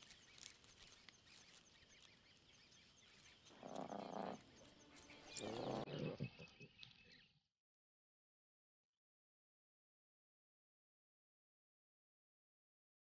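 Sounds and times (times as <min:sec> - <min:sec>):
faint chirping: 0:00.0 - 0:07.4
lions calling: 0:03.5 - 0:06.7.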